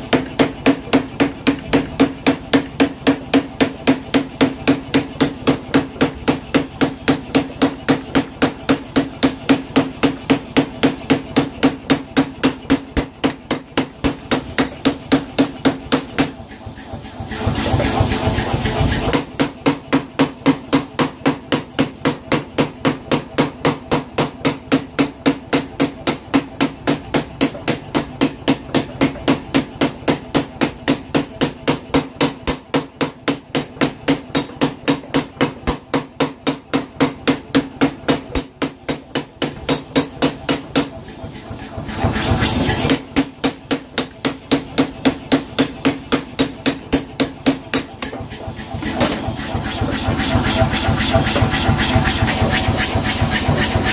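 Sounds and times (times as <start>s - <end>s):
machine hum: 46.9s - 53.9s.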